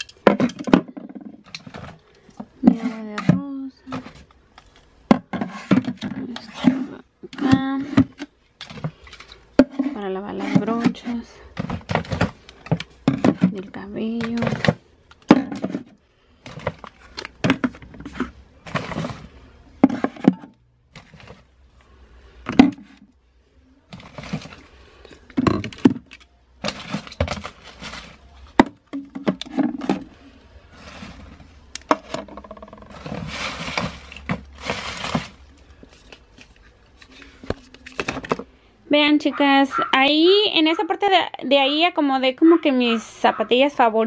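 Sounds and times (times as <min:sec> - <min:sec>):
bottles and cans clattering: 0:00.0 - 0:04.2, 0:05.1 - 0:15.9, 0:16.5 - 0:21.4, 0:25.3 - 0:30.2, 0:31.9 - 0:35.4
rustling: 0:23.9 - 0:28.6, 0:32.8 - 0:38.4.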